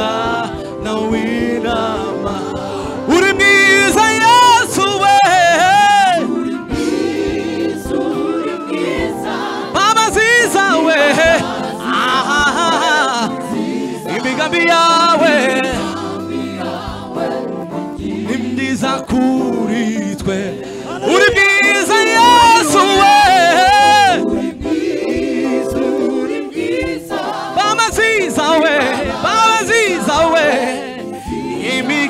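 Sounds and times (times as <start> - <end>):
music: 0.0 - 32.0
voices singing together: 0.0 - 32.0
loud voice singing with vibrato: 18.0 - 25.4.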